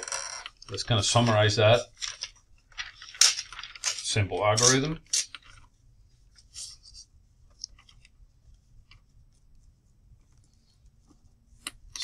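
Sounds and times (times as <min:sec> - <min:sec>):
steady low hum: 0:05.6 - 0:12.0.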